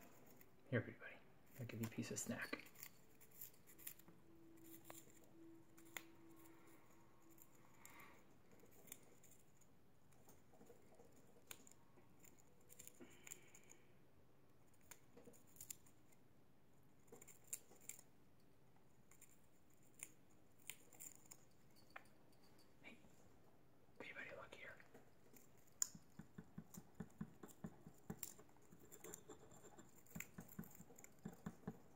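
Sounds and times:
birds' beaks nibbling wood: 0:25.3 - 0:31.9.

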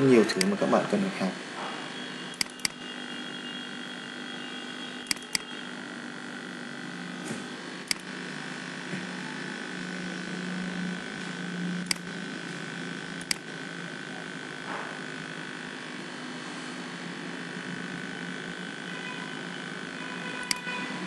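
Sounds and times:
steady background hum: 0:00.0 - 0:21.0
computer mouse clicking: 0:00.3 - 0:00.6, 0:02.4 - 0:02.8, 0:05.0 - 0:05.5, 0:07.8 - 0:08.1, 0:11.8 - 0:12.2, 0:13.1 - 0:13.5, 0:20.4 - 0:20.7.

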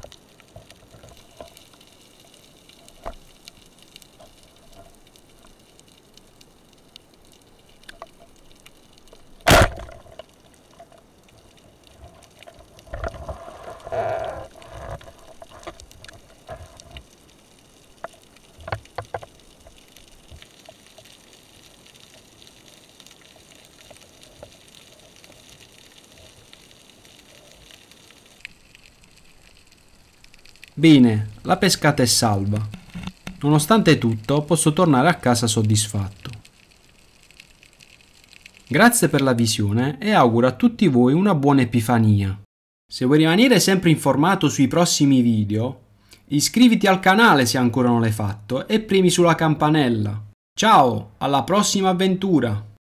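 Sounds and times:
knocks and rustling of struggling fish: 0:09.1 - 0:17.2, 0:17.9 - 0:21.2, 0:32.5 - 0:33.5
speargun firing underwater: 0:09.4 - 0:10.1.

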